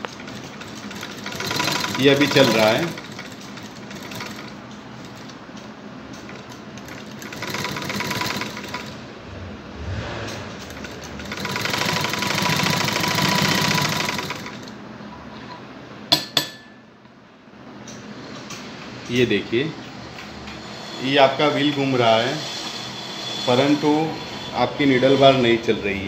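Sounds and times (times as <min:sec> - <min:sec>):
sewing machine rattling: 0:00.0 - 0:09.0, 0:10.6 - 0:14.8
steady machine hum: 0:00.0 - 0:26.0.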